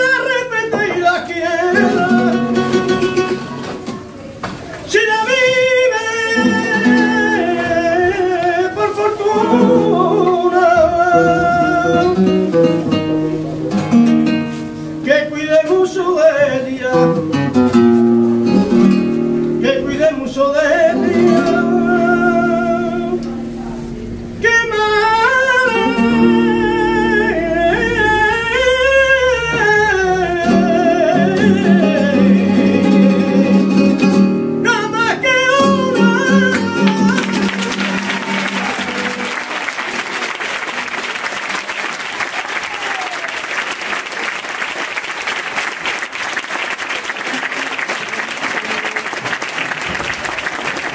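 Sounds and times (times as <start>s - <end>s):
man singing: 0.0s - 3.6s, 4.9s - 14.4s, 15.0s - 17.8s, 19.4s - 23.6s, 24.4s - 39.3s
acoustic guitar: 0.0s - 43.5s
audience applauding: 36.5s - 50.9s.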